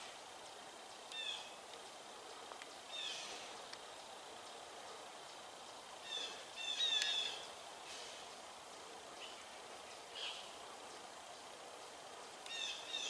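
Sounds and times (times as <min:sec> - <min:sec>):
faint ticks: 0:00.0 - 0:13.0
steady background hiss: 0:00.0 - 0:13.0
wild bird calling: 0:01.1 - 0:01.6, 0:02.2 - 0:03.6, 0:05.9 - 0:10.9, 0:12.4 - 0:13.0.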